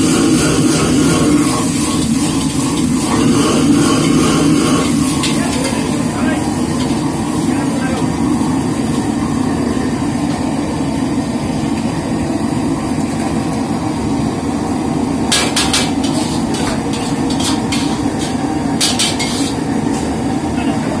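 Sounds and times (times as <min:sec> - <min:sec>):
gas wok burner rushing: 0:00.0 - 0:21.0
metal ladle clanking on wok: 0:15.3 - 0:19.6.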